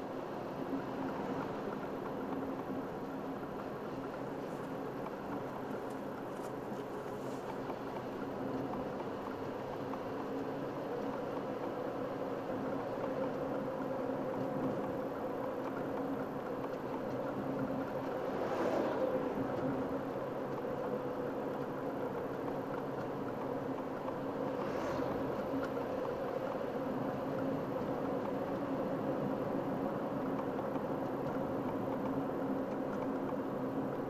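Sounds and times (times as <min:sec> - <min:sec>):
car engine hum: 0:00.0 - 0:34.0
road and tyre rumble: 0:00.0 - 0:34.0
truck passing: 0:17.3 - 0:20.8, 0:24.4 - 0:26.6.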